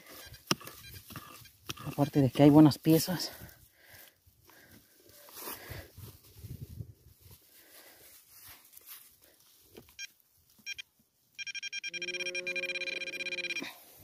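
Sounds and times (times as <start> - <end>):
metal detector beeps: 0.0 - 2.7, 9.9 - 13.8.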